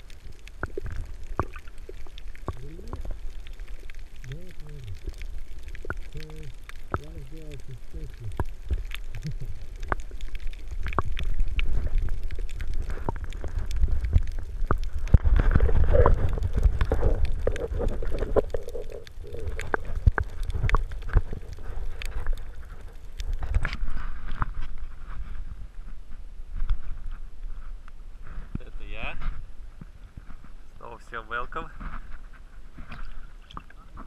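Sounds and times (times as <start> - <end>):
sharp clicks and crackles: 0.0 - 25.4
underwater rumble: 0.0 - 34.0.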